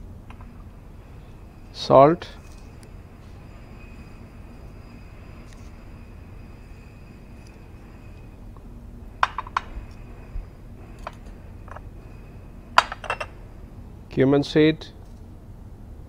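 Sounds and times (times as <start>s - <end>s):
faint room hum: 0.0s - 16.0s
spoon clinking ceramic bowls: 12.8s - 13.4s.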